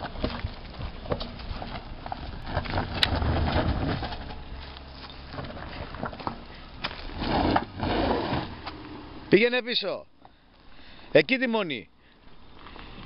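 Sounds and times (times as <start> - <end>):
tyres crunching over stones: 0.0 - 9.0
car engine hum: 0.0 - 11.0.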